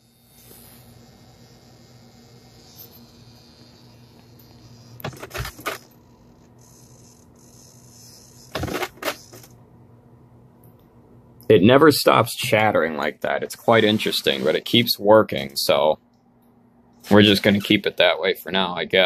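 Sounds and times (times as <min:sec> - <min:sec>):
steering servo buzzing and rattling: 0:00.0 - 0:09.6.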